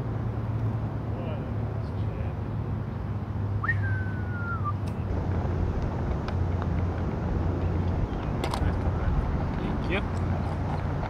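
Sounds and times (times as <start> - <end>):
whistled note sliding down: 3.6 - 4.8
steady low rumble: 5.0 - 11.0.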